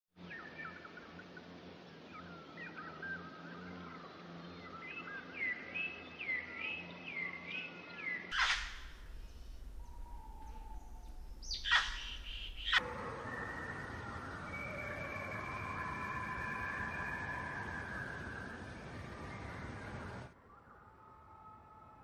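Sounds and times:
small birds chirping: 0:00.2 - 0:20.3
swooping bird note: 0:08.3 - 0:18.8
sharp downward sweeping calls: 0:08.3 - 0:20.2.

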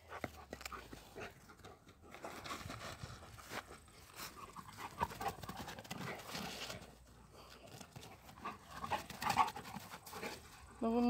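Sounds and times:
dogs breathing: 0:00.0 - 0:10.8
dogs scuffling on grass: 0:02.1 - 0:10.9.

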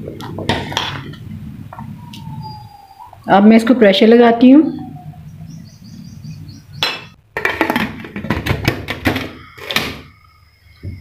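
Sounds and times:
metal lid ringing: 0:06.8 - 0:08.1
metal lid clanking: 0:06.8 - 0:10.0.

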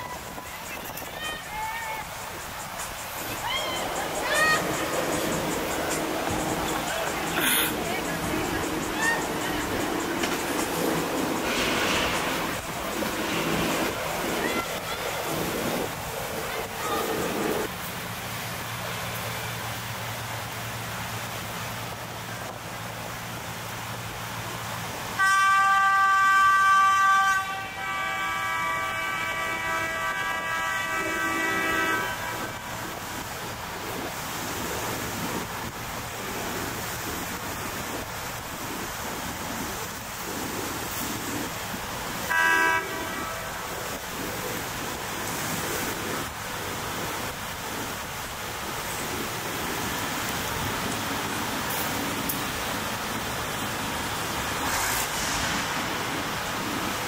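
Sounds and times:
boat engine: 0:00.0 - 0:57.0
water noise: 0:00.0 - 0:57.0
boat horns blasting: 0:03.4 - 0:17.7, 0:25.1 - 0:33.3, 0:42.1 - 0:46.3.

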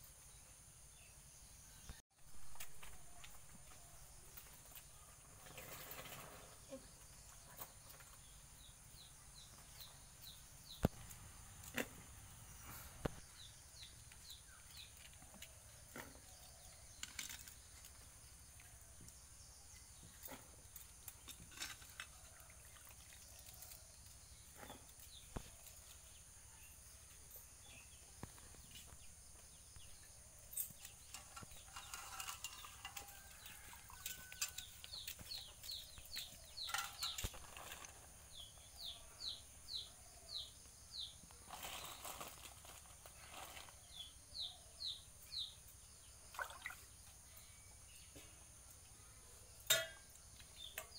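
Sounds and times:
birds chirping: 0:23.2 - 0:48.4
vegetables dropped into metal pots: 0:36.6 - 0:38.0, 0:49.6 - 0:50.9.

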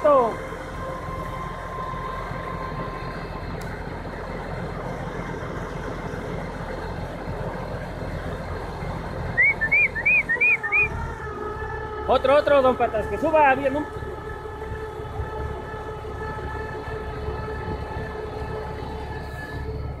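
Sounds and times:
truck engine under load: 0:00.0 - 0:20.0.

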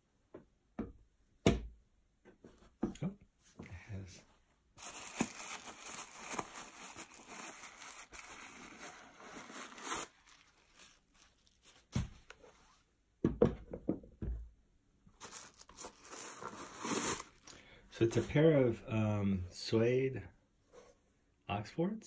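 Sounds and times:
paper stuffing rustling: 0:04.8 - 0:12.6, 0:15.2 - 0:17.5.

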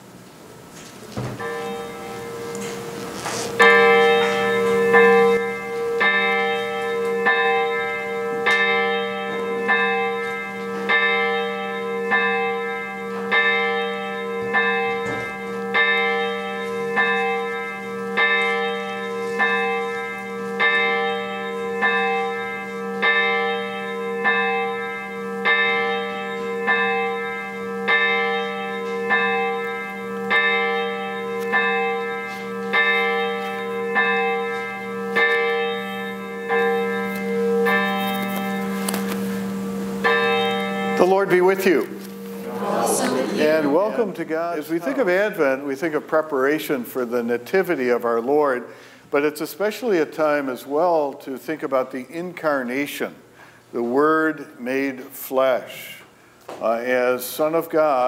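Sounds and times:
church bell tolling: 0:01.2 - 0:48.9.

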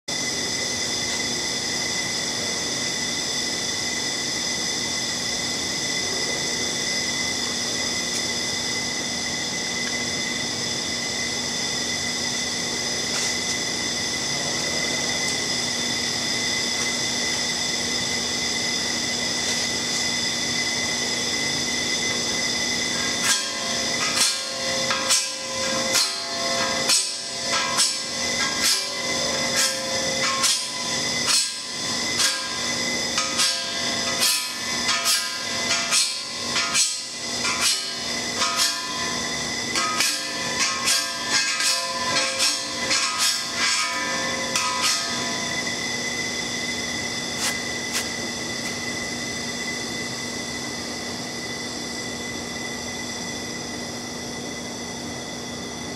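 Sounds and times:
steady background hum: 0:00.1 - 0:55.9
paint scraper scraping steel pipe: 0:23.1 - 0:39.1, 0:39.7 - 0:45.3.

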